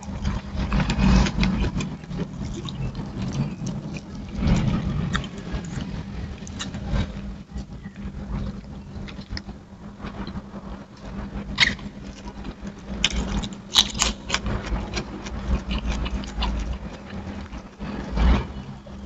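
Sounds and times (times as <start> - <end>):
steady low hum: 0.0 - 19.0
person chewing and lip smacking: 0.9 - 6.8, 12.2 - 18.1.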